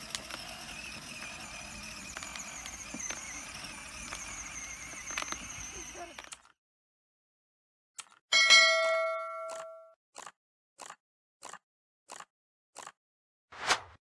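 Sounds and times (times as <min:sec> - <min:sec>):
click: 0:04.0 - 0:05.5, 0:08.0 - 0:08.2
bright bell ding: 0:08.4 - 0:09.9
short swishes: 0:13.6 - 0:14.0.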